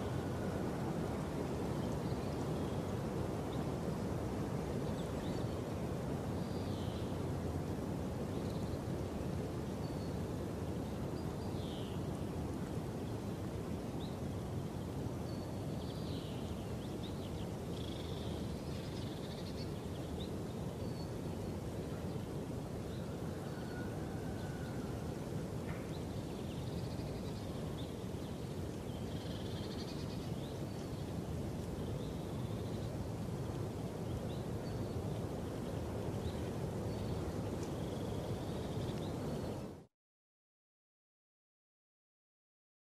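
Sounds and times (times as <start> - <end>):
small birds chirping: 25.8 - 39.7.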